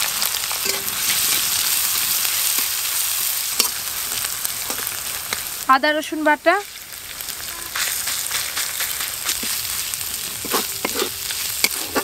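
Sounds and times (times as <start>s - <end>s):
onions sizzling in hot oil: 0.0s - 12.0s
spatula scraping metal pan: 10.2s - 12.0s.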